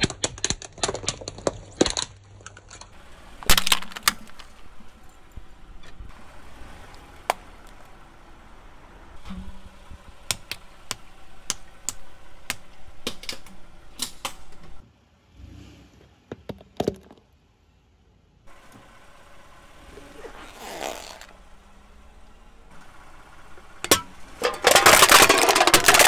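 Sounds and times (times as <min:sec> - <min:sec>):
tyre crushing objects cracking: 0:00.0 - 0:04.9, 0:23.8 - 0:26.0.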